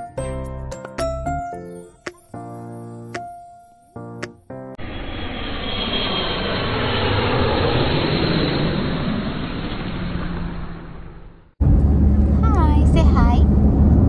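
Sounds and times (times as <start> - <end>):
faint high whine: 4.8 - 12.9
jet airplane passing: 4.8 - 14.0.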